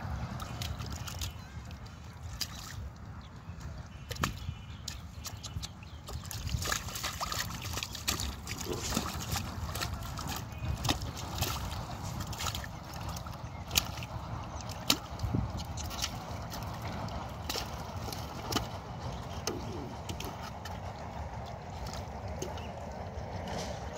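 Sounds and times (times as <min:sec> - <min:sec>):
hands splashing in muddy water: 0:00.4 - 0:03.0, 0:03.9 - 0:20.8
fish thrashing in mud: 0:05.2 - 0:18.8.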